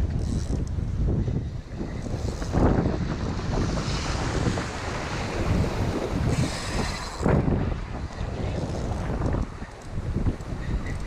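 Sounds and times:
wind buffeting microphone: 0.0s - 11.0s
waves washing against rocks: 2.1s - 10.6s.

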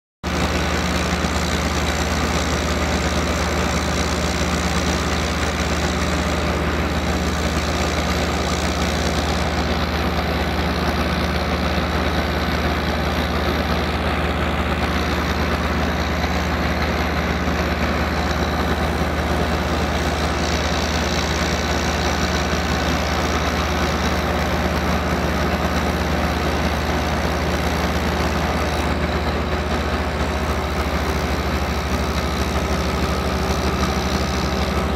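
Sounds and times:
gas engine droning: 0.3s - 34.9s.

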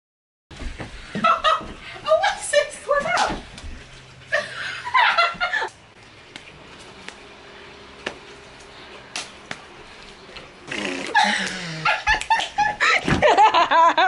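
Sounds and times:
hand slaps and snaps: 9.1s - 9.6s.

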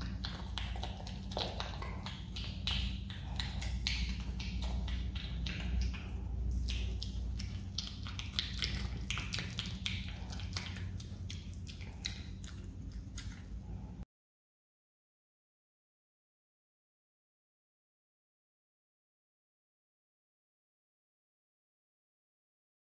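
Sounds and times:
animal chewing clicks and smacks: 0.0s - 13.9s
steady low hum: 0.0s - 14.1s.

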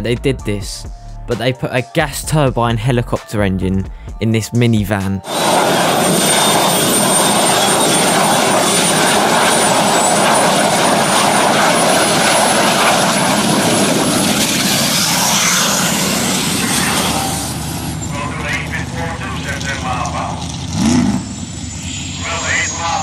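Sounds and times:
turbine engine roaring and whining: 5.2s - 23.0s.

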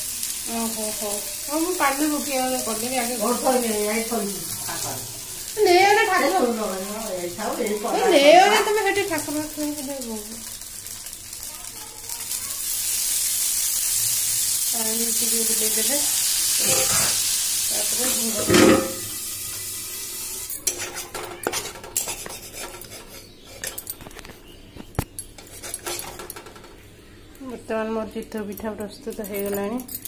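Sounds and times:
batter sizzling on hot pan: 0.0s - 27.0s
steel bowl clanking on pan: 16.6s - 17.2s, 18.3s - 19.2s
utensils clinking and clattering: 16.6s - 17.2s, 18.1s - 19.2s, 20.4s - 26.8s, 28.1s - 30.0s.

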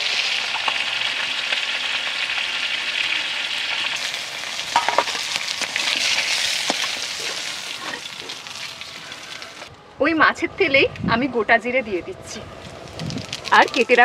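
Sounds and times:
fish sizzling in hot oil: 0.0s - 9.7s, 12.7s - 14.0s.

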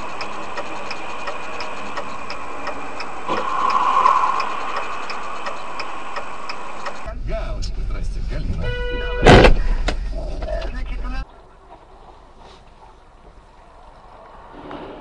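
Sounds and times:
regular ticking: 0.0s - 7.1s
steady hum: 0.0s - 8.0s
burst of louder noise: 2.8s - 7.1s.

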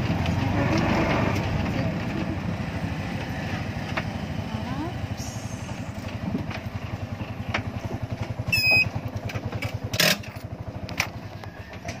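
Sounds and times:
engine putter: 0.0s - 12.0s
high squeak: 8.5s - 8.9s.

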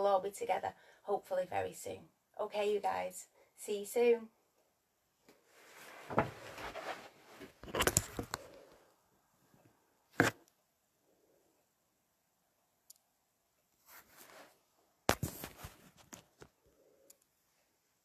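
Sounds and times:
rustling: 5.4s - 8.7s, 13.8s - 16.6s.

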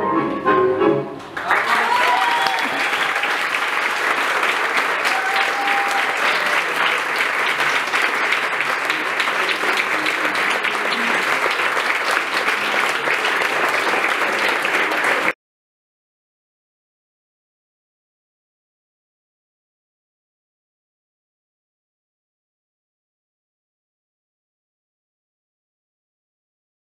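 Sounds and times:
audience applauding: 1.2s - 15.4s.

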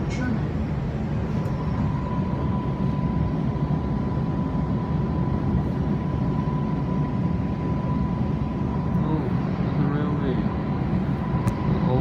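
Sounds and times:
train cabin low rumble: 0.0s - 3.6s.

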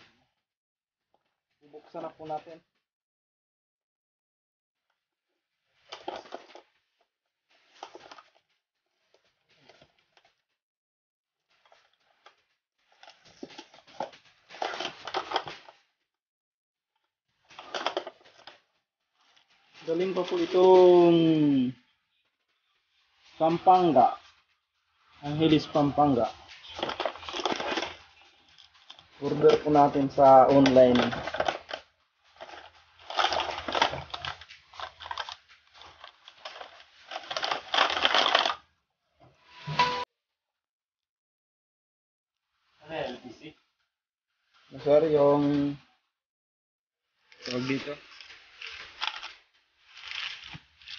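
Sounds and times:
plastic packaging crinkling: 5.7s - 6.6s, 11.6s - 15.8s, 17.4s - 20.8s, 25.2s - 38.6s, 47.3s - 50.9s.

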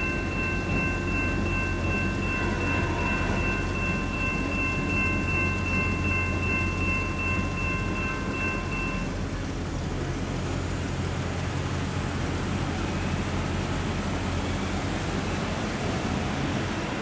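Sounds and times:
railroad crossing bell ringing: 0.0s - 9.6s
road traffic rumble: 0.0s - 17.0s.

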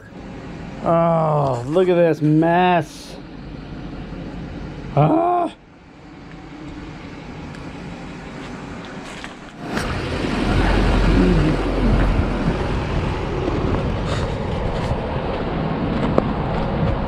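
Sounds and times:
vehicle rumbling over dirt track: 0.0s - 17.0s
wind on the microphone: 9.6s - 17.0s.

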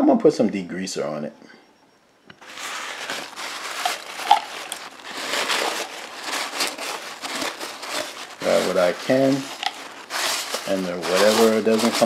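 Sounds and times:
paper towel wiping metal pan: 2.4s - 12.0s.

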